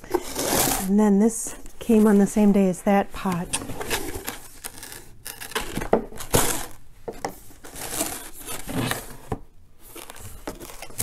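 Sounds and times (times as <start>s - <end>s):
cardboard box rustling and scraping: 0.0s - 0.9s, 3.2s - 11.0s.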